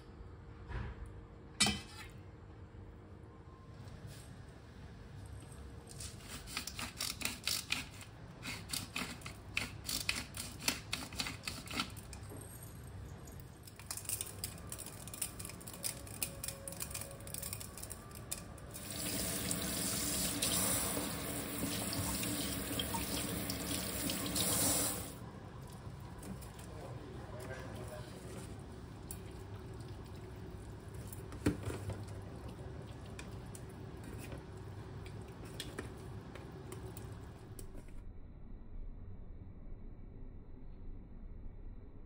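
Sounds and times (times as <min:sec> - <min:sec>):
kitchen tap running: 0:18.7 - 0:25.2.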